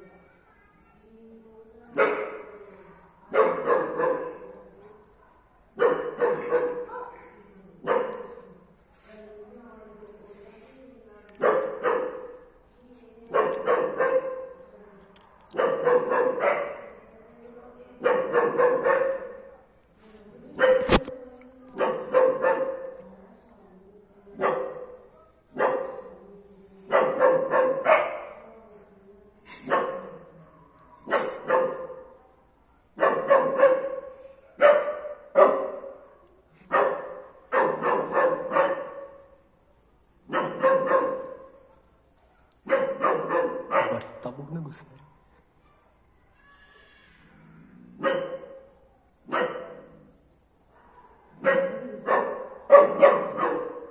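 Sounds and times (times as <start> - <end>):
dog barking: 1.9 - 2.6, 3.3 - 8.6, 11.4 - 12.5, 13.3 - 14.6, 15.3 - 17.0, 18.0 - 19.5, 20.5 - 21.2, 21.8 - 23.1, 24.3 - 26.2, 26.9 - 28.5, 29.5 - 39.4, 40.2 - 44.3, 47.9 - 50.0, 50.7 - 53.9.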